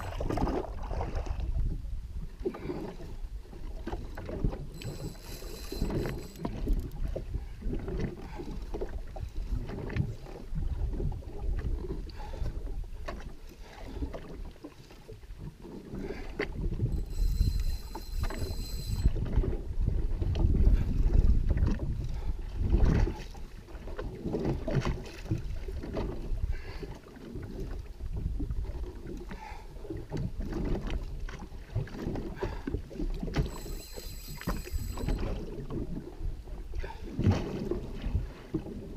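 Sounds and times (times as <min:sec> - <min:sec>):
water sloshing against jet ski: 0:00.0 - 0:38.9
short high-pitched whirs: 0:04.7 - 0:07.0, 0:16.9 - 0:19.2, 0:33.4 - 0:35.4
wind buffeting microphone: 0:16.5 - 0:23.2.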